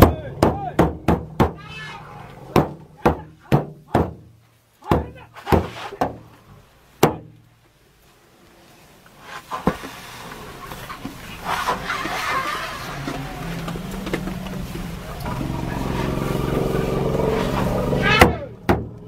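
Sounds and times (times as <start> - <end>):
jeep engine revving: 9.8 - 19.0.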